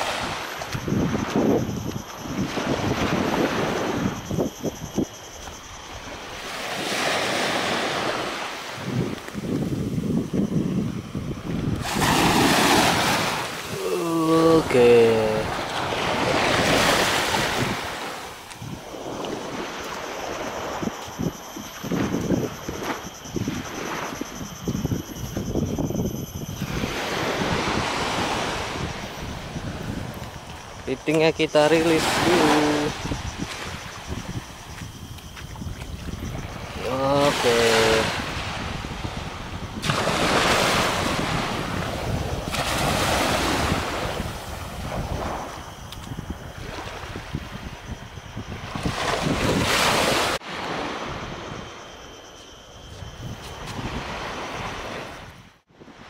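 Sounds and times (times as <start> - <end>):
wind rumbling on microphone: 0.0 - 56.0
surf: 11.4 - 21.1, 26.6 - 46.0.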